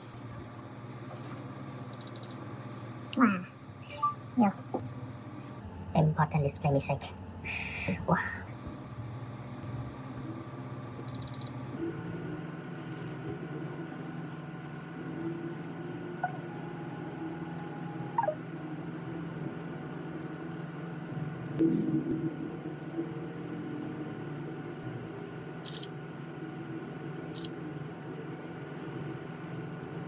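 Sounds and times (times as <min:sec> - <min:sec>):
low hum: 0:00.0 - 0:30.0.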